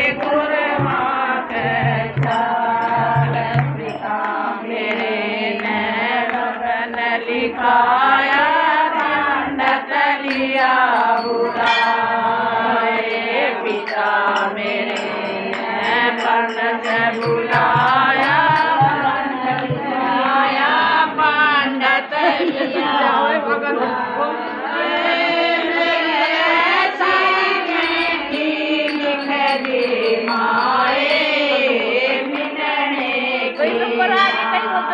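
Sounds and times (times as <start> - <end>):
women singing devotional song: 0.0 - 34.9
hand-clapping: 0.1 - 7.3, 8.9 - 12.4, 13.1 - 20.4, 26.2 - 32.6.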